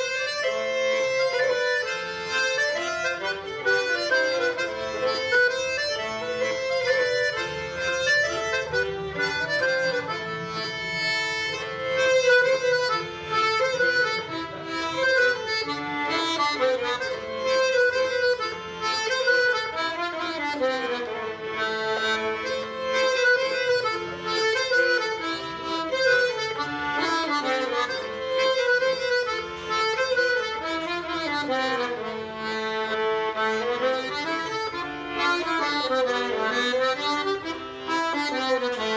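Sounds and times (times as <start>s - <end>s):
accordion-like reed melody: 0.0s - 38.9s.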